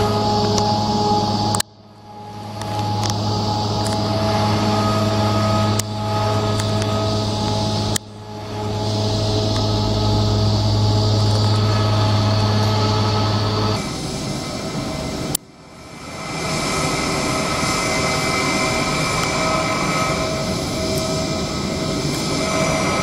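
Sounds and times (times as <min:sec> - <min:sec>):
jet engines idling: 0:00.0 - 0:23.0.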